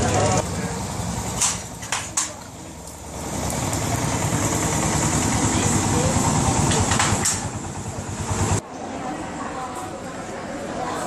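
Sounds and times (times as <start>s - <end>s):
motorboat engine running: 2.5s - 8.6s.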